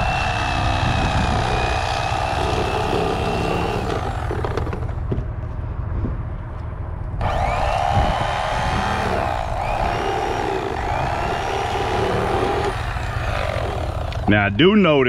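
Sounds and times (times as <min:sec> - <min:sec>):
electric knife buzzing: 0:00.0 - 0:04.5, 0:07.2 - 0:14.3.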